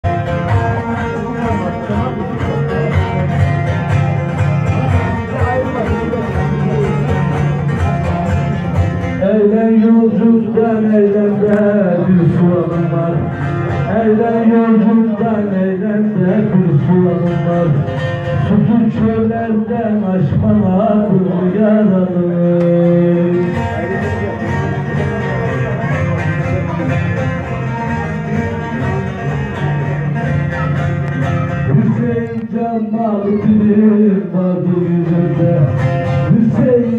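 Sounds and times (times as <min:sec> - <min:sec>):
long-necked lute strumming: 0:00.0 - 0:36.9
person singing: 0:09.2 - 0:23.7, 0:27.5 - 0:36.9.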